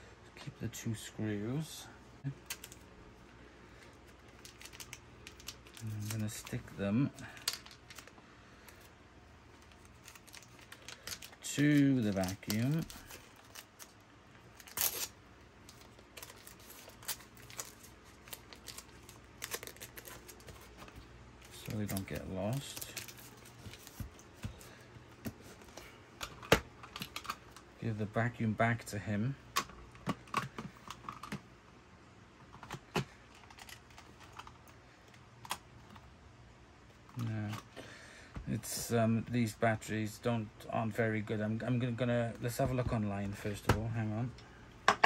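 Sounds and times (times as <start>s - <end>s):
adhesive tape crackling: 9.5s - 24.2s.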